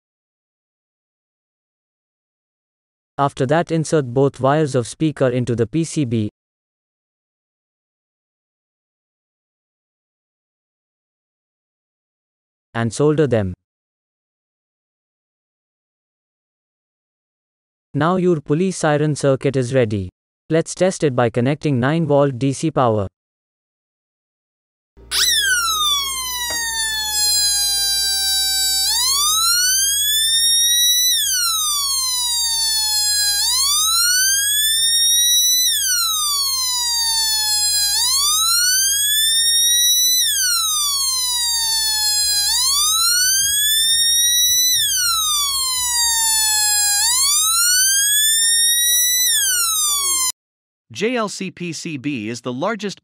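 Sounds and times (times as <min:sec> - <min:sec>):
electronic siren wailing: 0:25.0 - 0:50.4.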